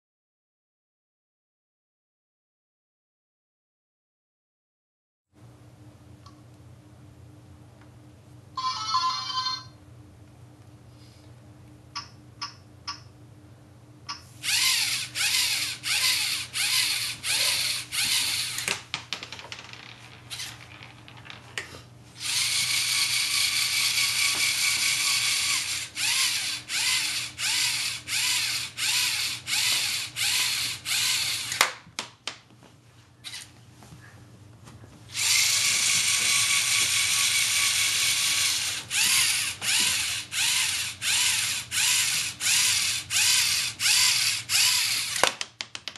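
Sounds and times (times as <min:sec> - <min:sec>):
servo motors whirring: 0:14.4 - 0:18.7, 0:22.2 - 0:31.6, 0:35.1 - 0:45.2.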